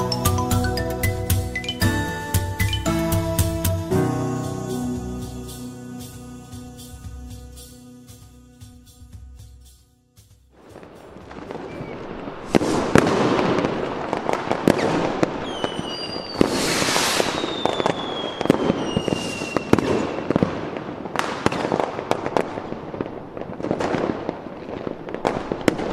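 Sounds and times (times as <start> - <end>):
fireworks bangs and crackling: 10.6 - 25.9
fireworks whistles falling in pitch: 10.8 - 13.2, 14.7 - 20.4.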